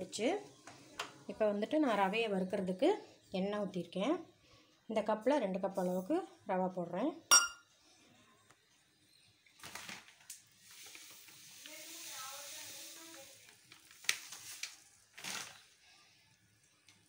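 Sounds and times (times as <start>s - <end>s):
semolina sizzling in hot oil: 10.4s - 15.0s.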